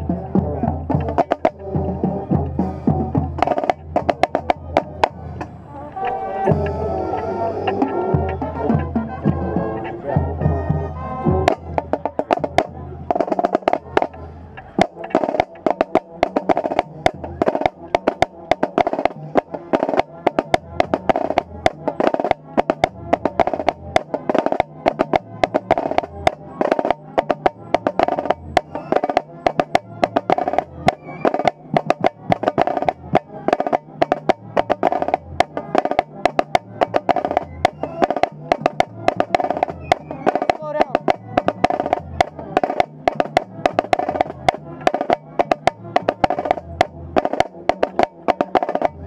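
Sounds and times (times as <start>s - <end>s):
marching snare drum: 0.0s - 5.3s, 11.3s - 49.0s
horns playing sustained notes: 4.6s - 13.1s.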